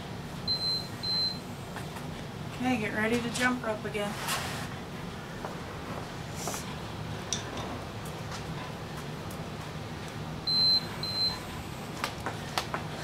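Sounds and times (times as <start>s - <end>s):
timer beeps: 0.5s - 1.4s, 10.5s - 11.4s.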